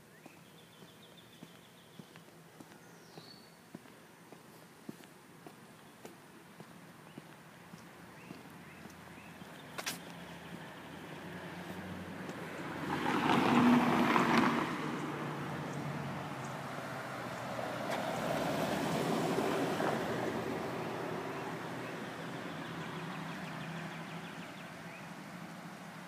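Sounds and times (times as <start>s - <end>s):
traffic noise: 0.0s - 26.0s
car passing: 7.5s - 26.0s.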